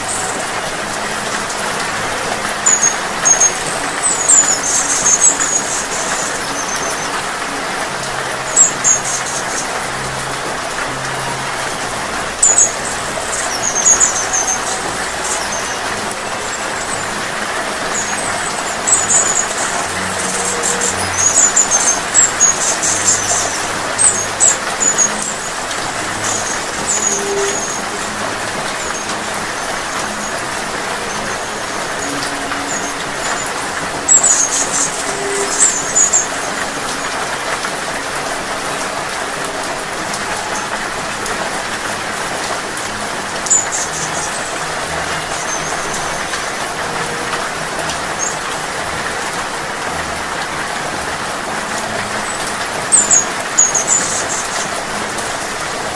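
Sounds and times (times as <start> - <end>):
hummingbird chirps: 0.0 - 10.6, 11.2 - 37.6, 52.2 - 54.8
steady rain falling: 0.0 - 55.9.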